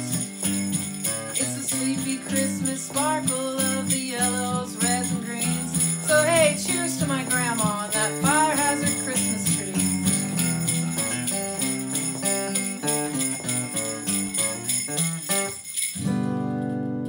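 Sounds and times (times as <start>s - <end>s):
sleigh bell shaken: 0.0s - 16.5s
strummed acoustic guitar: 0.0s - 17.0s.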